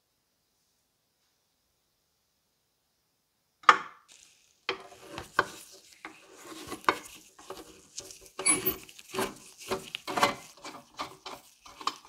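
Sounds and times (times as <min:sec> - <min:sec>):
screwdriver scraping screw: 0:04.7 - 0:12.0.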